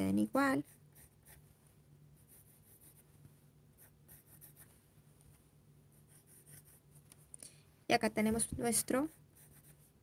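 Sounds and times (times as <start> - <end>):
low steady hum: 0.0 - 10.0
pencil scratching on paper: 0.5 - 1.4, 2.2 - 3.1, 3.8 - 4.8, 5.9 - 7.0, 8.9 - 10.0.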